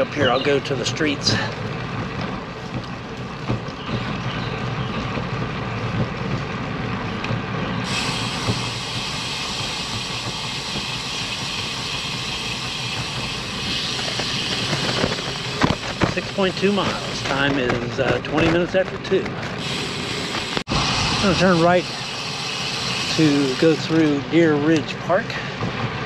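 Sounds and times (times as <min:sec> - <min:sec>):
tyres clicking over joints: 0:00.0 - 0:20.7
bicycle tyre and wind noise: 0:00.0 - 0:26.0.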